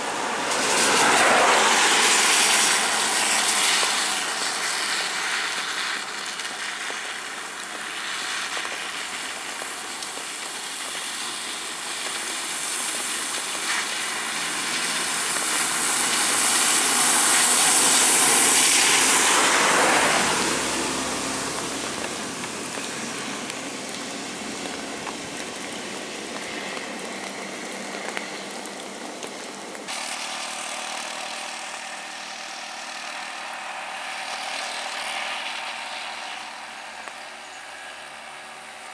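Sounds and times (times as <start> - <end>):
tyre hiss on wet road: 0.0 - 38.9
vehicle engines passing: 0.0 - 38.9.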